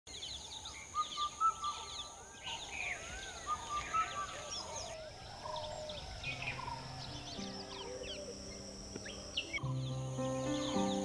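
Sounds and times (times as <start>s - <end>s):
birds chirping: 0.1s - 11.0s
low sustained music tones: 0.1s - 11.0s
high-pitched drone: 6.0s - 11.0s.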